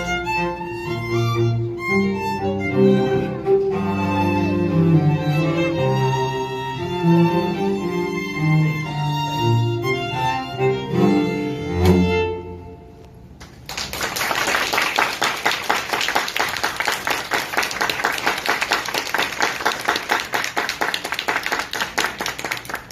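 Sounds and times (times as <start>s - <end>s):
violins and cello playing: 0.0s - 12.9s
audience applause: 13.5s - 22.9s.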